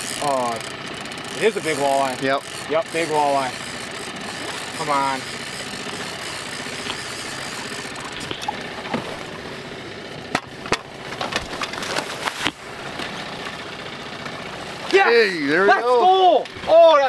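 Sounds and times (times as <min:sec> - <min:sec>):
fish thrashing and splashing: 0:02.4 - 0:15.0.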